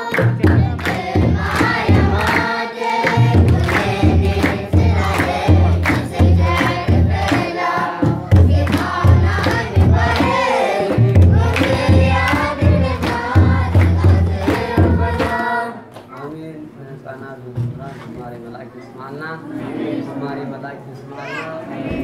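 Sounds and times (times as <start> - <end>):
children's choir singing a hymn: 0.0 - 15.9, 19.4 - 22.0
hand-clapping: 0.0 - 16.3
deep drum beating: 0.2 - 15.6.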